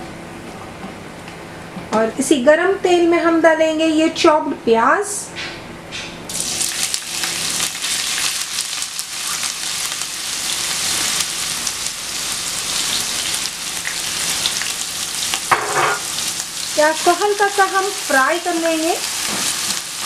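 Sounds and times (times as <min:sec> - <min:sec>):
onions sizzling in hot oil: 0:06.3 - 0:20.0.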